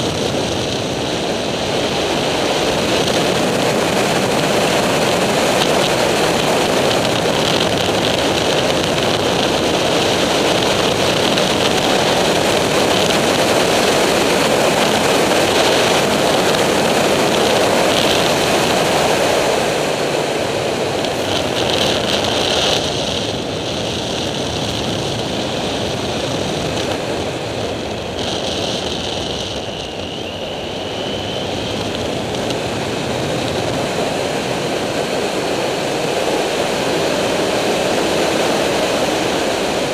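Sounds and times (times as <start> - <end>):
motorcycle engine running: 0.0 - 39.9
wind rushing over microphone: 0.0 - 39.9.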